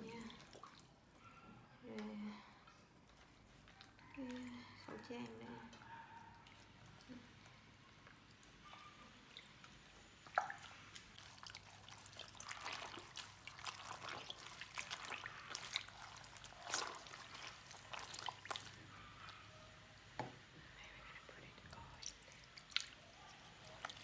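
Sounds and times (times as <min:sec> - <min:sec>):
water splashes and drips: 0:00.0 - 0:01.0, 0:06.4 - 0:19.3, 0:21.8 - 0:24.0
wet fabric rubbed and squeezed: 0:10.2 - 0:19.2.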